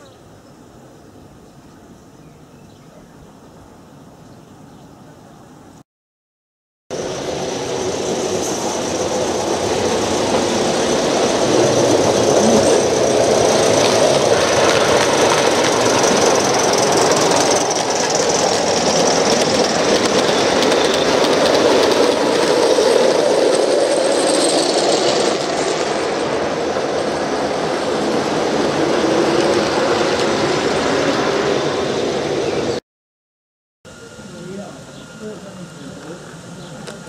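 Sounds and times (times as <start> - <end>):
model train wheels rumbling: 7.0 - 26.0.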